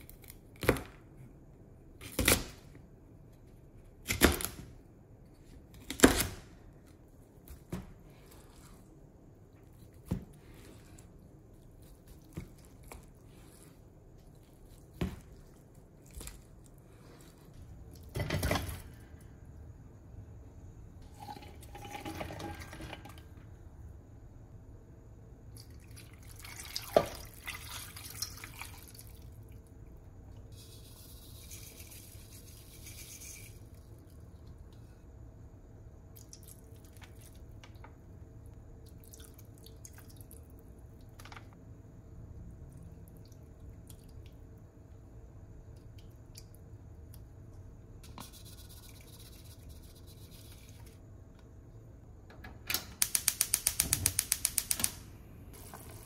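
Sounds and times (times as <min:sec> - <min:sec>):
liquid pouring into pot: 0:21.0 - 0:23.2
gas stove igniter clicking: 0:52.6 - 0:55.0.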